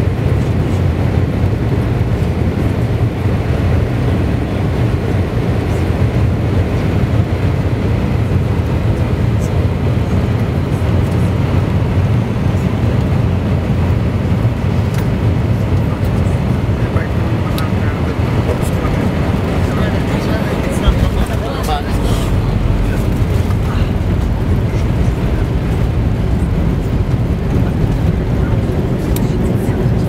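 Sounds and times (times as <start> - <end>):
aircraft cabin engine rumble: 0.0 - 30.0
rushing air: 18.1 - 30.0.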